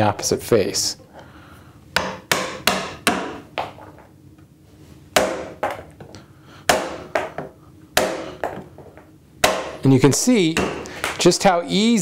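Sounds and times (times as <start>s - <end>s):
mallet knocking chisel into wood: 2.0s - 3.7s, 5.2s - 5.8s, 6.7s - 8.7s, 9.4s - 9.8s, 10.5s - 11.2s
wood splitting: 8.0s - 8.4s, 9.4s - 9.9s.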